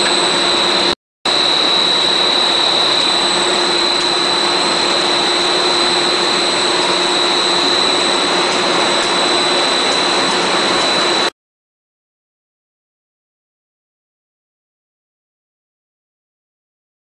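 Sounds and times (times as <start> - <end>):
high-pitched whine: 0.0 - 11.3
machine motors and gearboxes: 0.0 - 11.3.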